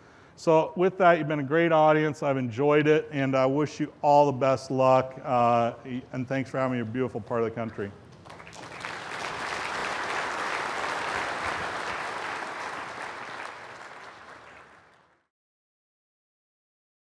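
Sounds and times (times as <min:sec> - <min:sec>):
audience applauding: 0:08.2 - 0:15.2.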